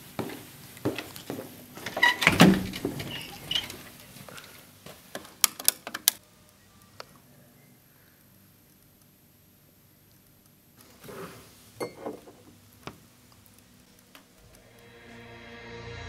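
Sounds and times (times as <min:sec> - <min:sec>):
footsteps on hard floor: 0:00.0 - 0:02.0.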